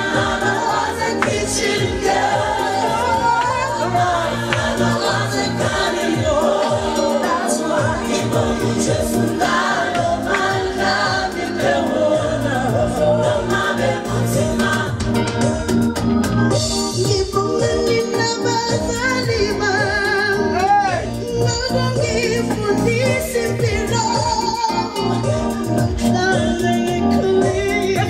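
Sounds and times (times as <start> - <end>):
woman singing: 0.0 - 13.6, 16.6 - 28.0
choir voices: 0.0 - 16.6
steady bass beat: 0.0 - 28.0.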